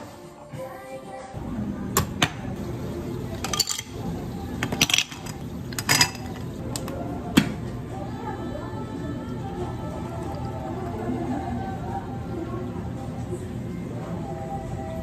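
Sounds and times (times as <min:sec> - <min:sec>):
ice cubes clinking in glasses: 0:03.4 - 0:04.0, 0:04.6 - 0:06.4.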